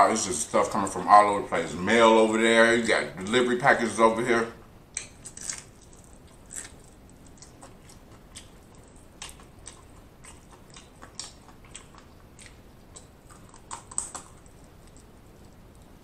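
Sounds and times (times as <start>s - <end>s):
person chewing: 4.9s - 16.0s
crisp crunches: 5.0s - 8.5s.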